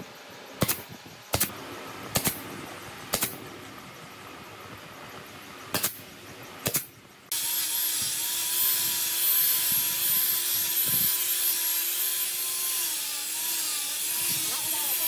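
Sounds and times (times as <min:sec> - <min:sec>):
nail gun firing: 0:00.6 - 0:01.5, 0:02.1 - 0:02.4, 0:03.1 - 0:03.4, 0:05.7 - 0:06.0, 0:06.6 - 0:07.4
power sander on wood: 0:07.3 - 0:15.0.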